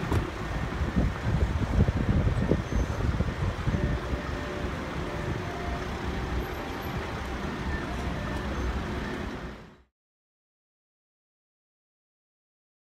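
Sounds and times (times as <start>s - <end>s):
road traffic rumble: 0.0s - 9.9s.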